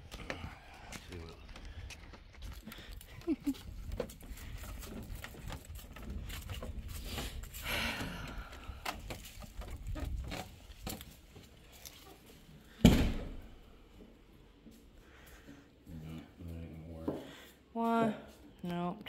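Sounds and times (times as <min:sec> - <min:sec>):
footsteps on wooden deck: 0:00.0 - 0:15.8
loud thump: 0:12.8 - 0:13.4.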